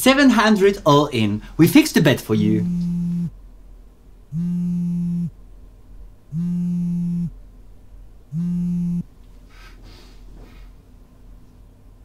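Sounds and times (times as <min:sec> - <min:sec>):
phone buzzing on vibrate: 0:02.6 - 0:03.3, 0:04.3 - 0:05.3, 0:06.3 - 0:07.4, 0:08.3 - 0:09.1.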